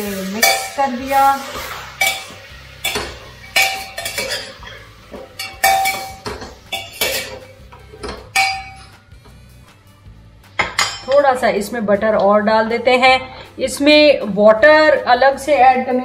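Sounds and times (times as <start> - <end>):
metal spoon scraping a pot: 1.6 - 9.0.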